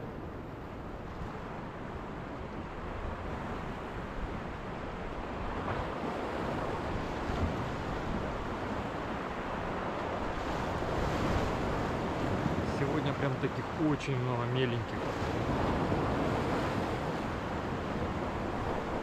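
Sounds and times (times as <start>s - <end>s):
surf washing against shore: 0.8s - 19.0s
wind noise on microphone: 5.2s - 12.8s.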